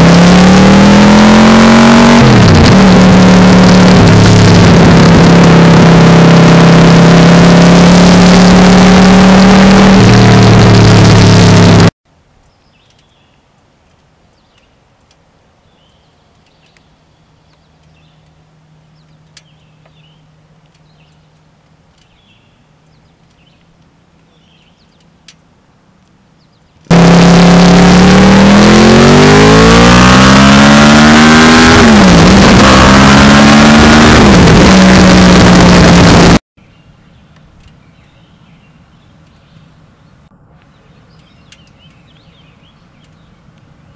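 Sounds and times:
motorcycle engine accelerating: 0:00.0 - 0:12.0, 0:26.9 - 0:36.4.

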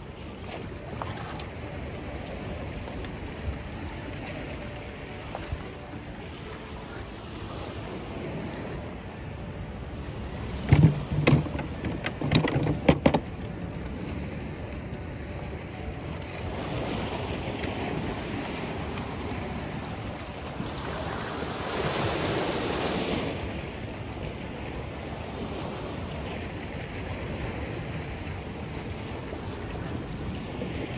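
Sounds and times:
sharp knocks and thumps: 0:10.6 - 0:13.3
waves washing against rocks: 0:16.3 - 0:30.9.

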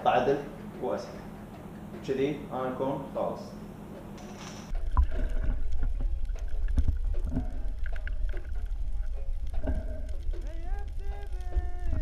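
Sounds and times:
underwater clicks and knocks: 0:04.7 - 0:12.0
underwater rumble: 0:04.7 - 0:12.0.

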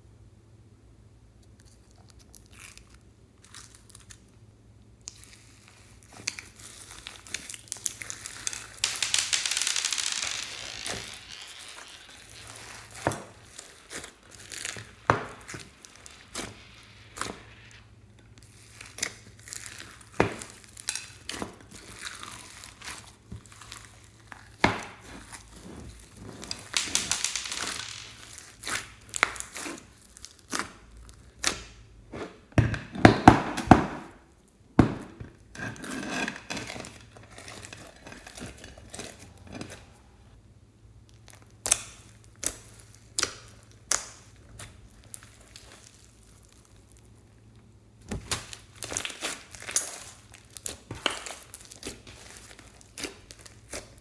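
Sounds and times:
foam beads crackling clicks: 0:05.0 - 0:31.8, 0:41.1 - 0:47.2, 0:48.2 - 0:54.0
slime squishing with wet pops: 0:48.1 - 0:54.0.

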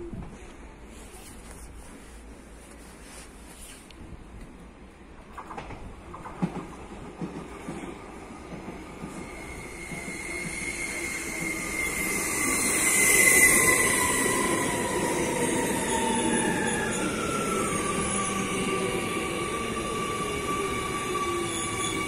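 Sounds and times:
train passing: 0:04.6 - 0:22.0.

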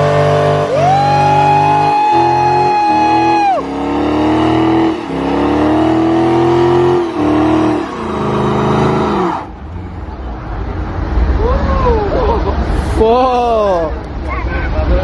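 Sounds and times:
car engine revving high: 0:00.0 - 0:09.9
spinning tyres hissing: 0:00.0 - 0:09.9.

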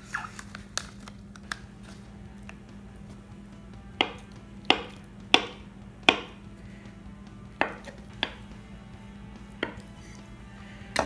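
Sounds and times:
knife chopping onto cutting board: 0:04.0 - 0:06.4, 0:07.6 - 0:08.5.

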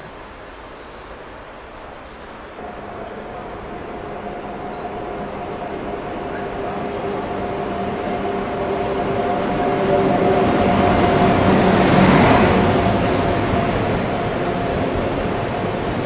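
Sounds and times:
electric train passing: 0:00.0 - 0:16.0
wheels squealing: 0:02.2 - 0:13.3.

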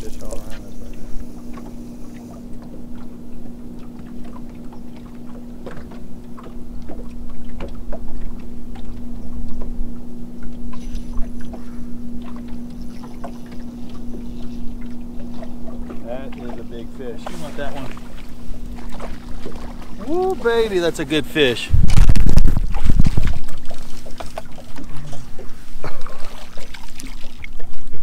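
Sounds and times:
steady low hum: 0:00.0 - 0:28.0
waves lapping against boat hull: 0:00.0 - 0:28.0.

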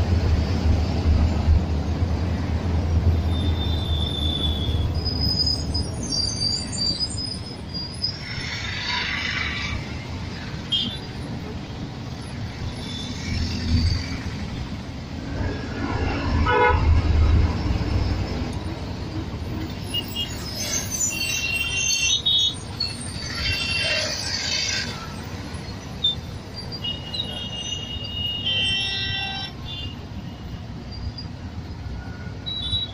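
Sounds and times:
engine and road rumble: 0:00.0 - 0:32.9
car and motorbike horns honking: 0:16.4 - 0:16.9, 0:26.9 - 0:30.0.

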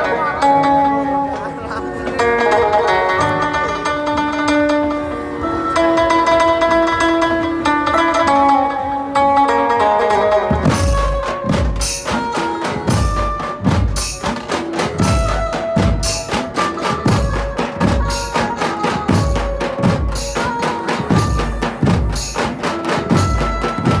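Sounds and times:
banjo melody: 0:00.0 - 0:24.0
large drums beating: 0:10.0 - 0:24.0.

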